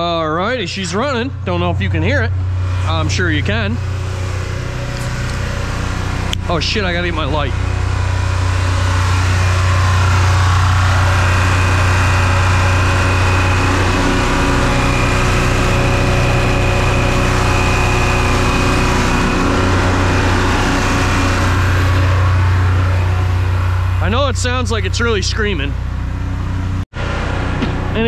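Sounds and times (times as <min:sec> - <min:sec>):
diesel engine running at high speed: 0:00.0 - 0:28.0.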